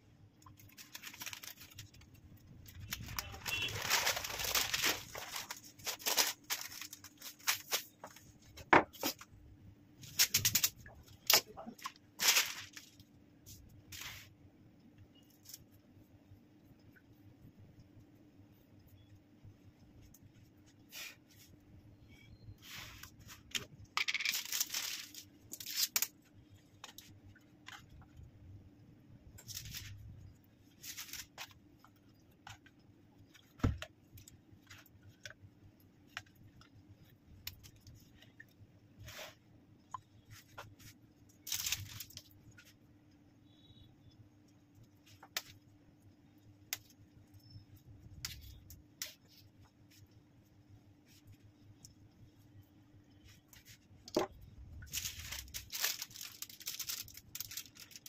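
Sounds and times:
parchment paper rustling: 0:00.4 - 0:09.4, 0:10.0 - 0:14.4, 0:22.6 - 0:28.3, 0:29.4 - 0:42.8, 0:51.0 - 0:52.4, 0:53.1 - 0:58.0.

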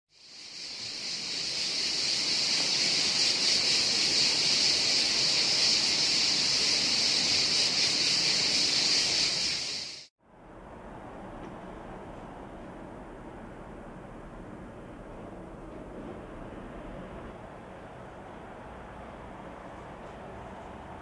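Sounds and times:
cicada buzzing drone: 0:00.1 - 0:10.1.

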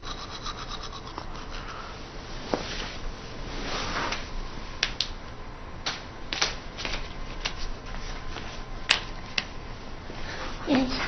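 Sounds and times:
soft rustle: 0:02.4 - 0:04.8.

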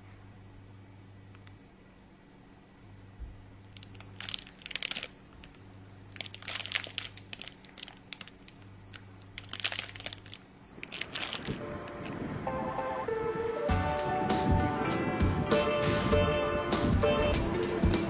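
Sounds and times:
cellophane bag crinkling: 0:03.8 - 0:12.2.

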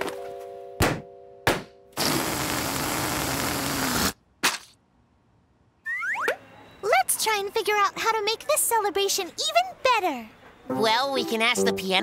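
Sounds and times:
loud hiss: 0:02.0 - 0:04.2.

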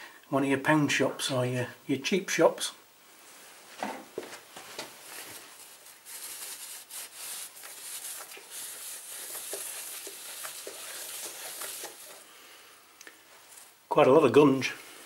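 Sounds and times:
rag scrubbing metal disc: 0:05.5 - 0:12.2.

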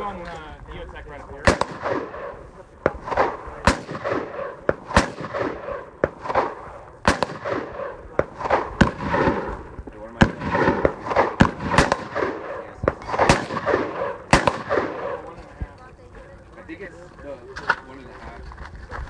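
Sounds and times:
gunshots with echo: 0:01.4 - 0:15.4.

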